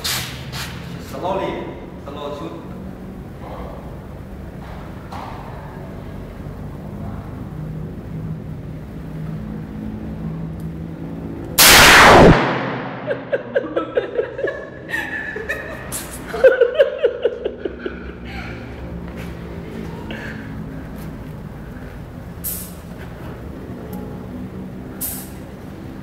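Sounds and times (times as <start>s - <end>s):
revolver shot: 11.6s - 13.6s
people laughing: 13.0s - 18.9s.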